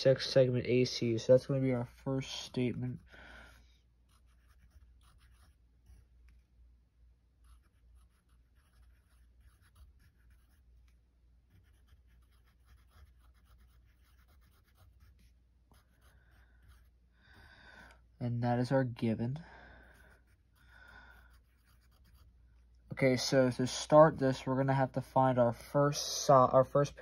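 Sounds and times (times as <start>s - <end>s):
pen scratching on paper: 4.0s - 6.4s, 7.4s - 17.0s, 19.9s - 22.4s.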